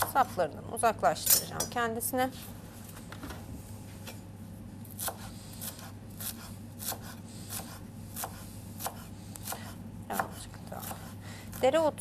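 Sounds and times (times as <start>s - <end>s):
knife chopping on wooden board: 4.9s - 11.6s.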